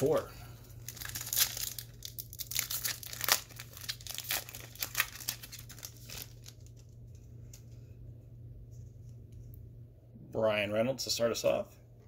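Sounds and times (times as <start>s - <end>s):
foil wrapper tearing and crinkling: 0.8s - 7.0s.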